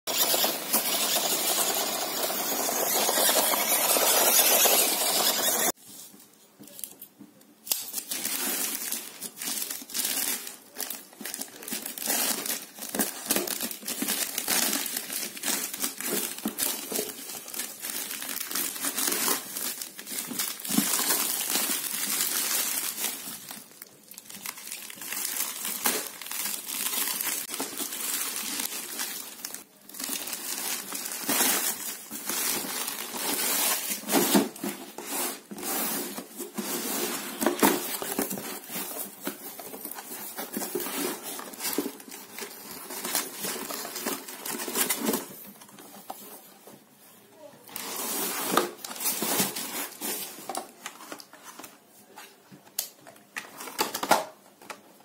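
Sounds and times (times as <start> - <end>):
plastic bag crinkling and tearing: 7.7 - 45.7.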